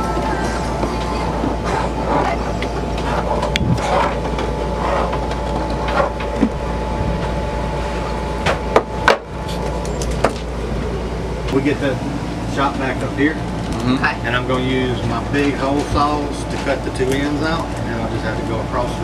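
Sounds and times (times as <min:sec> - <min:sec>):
faint voices: 0:00.0 - 0:05.3, 0:10.8 - 0:19.0
low machine hum: 0:00.0 - 0:19.0.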